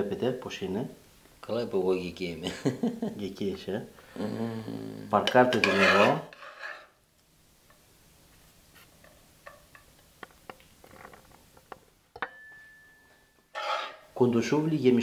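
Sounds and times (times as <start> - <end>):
metal spatula clicking and tapping: 9.0 - 10.6.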